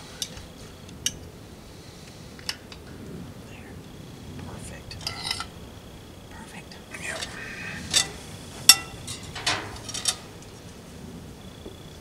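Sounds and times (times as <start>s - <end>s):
murmured voices: 2.9s - 10.1s.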